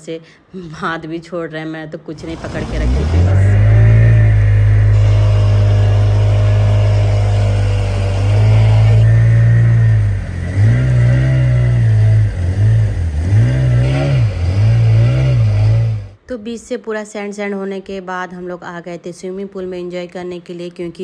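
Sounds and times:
motorboat engine droning: 2.2s - 16.2s.

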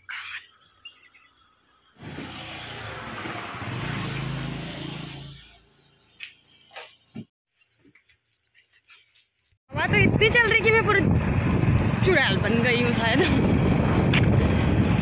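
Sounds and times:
vehicle passing on road: 2.0s - 6.0s.

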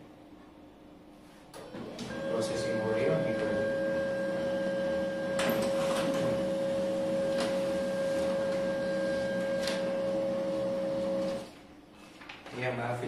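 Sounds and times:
printer motor whine: 1.6s - 11.5s.

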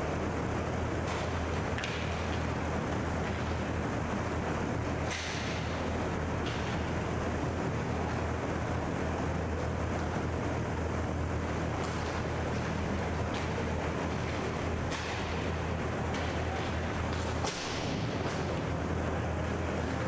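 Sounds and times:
rumbling rink noise: 0.0s - 20.0s
hockey sticks and puck clacking: 1.0s - 3.8s, 5.0s - 7.0s, 11.7s - 18.8s.

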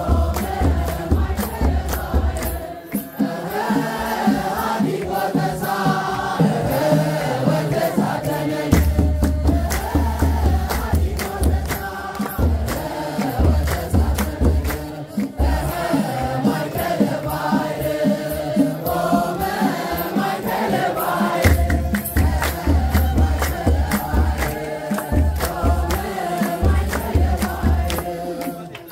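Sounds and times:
sharp claps: 0.0s - 3.2s, 8.2s - 16.3s, 21.4s - 28.9s
group singing a hymn: 0.0s - 28.9s
deep drum beating: 21.4s - 28.1s.

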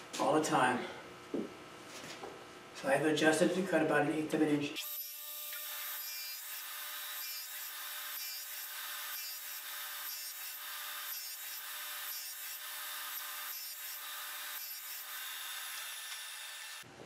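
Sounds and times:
radial arm saw cutting plywood: 4.8s - 16.9s.

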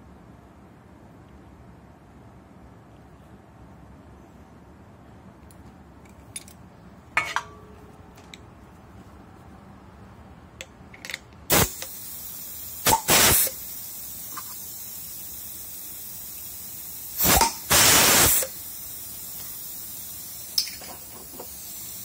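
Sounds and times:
faint air hiss: 0.0s - 22.0s
loud blast of air: 11.5s - 20.6s
pneumatic crimper firing: 11.5s - 22.0s.

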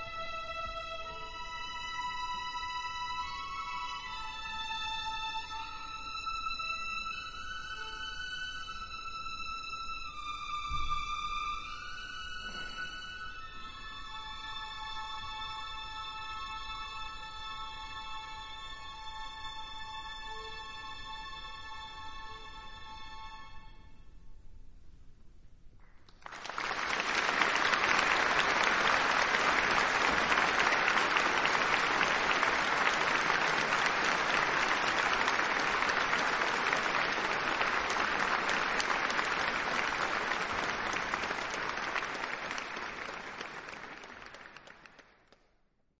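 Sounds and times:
audience applauding: 26.0s - 45.4s.

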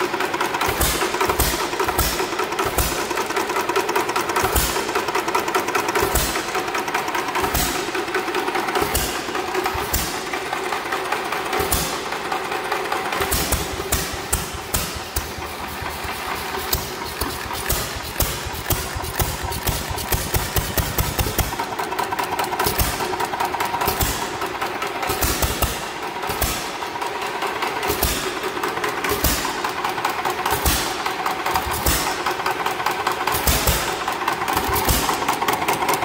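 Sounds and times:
valve gear clacking: 13.2s - 26.8s.

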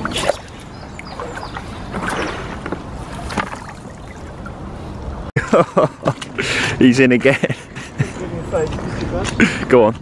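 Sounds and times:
water sloshing and lapping: 0.0s - 5.2s.

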